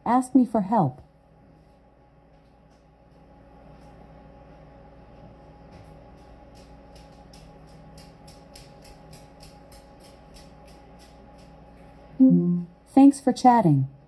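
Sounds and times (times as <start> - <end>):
low room hum: 0.0 - 14.0
smart speaker tone: 12.2 - 12.7.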